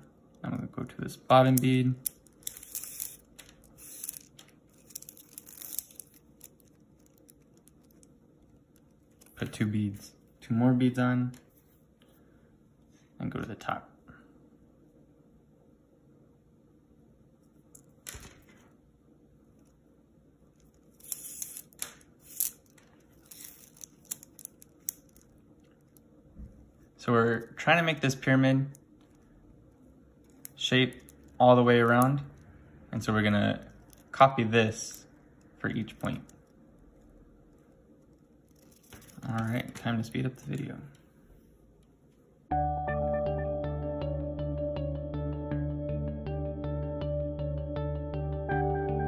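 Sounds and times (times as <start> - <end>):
plastic beads clicking and rustling: 1.3 - 9.4, 20.5 - 26.1, 28.6 - 32.4, 33.6 - 40.7.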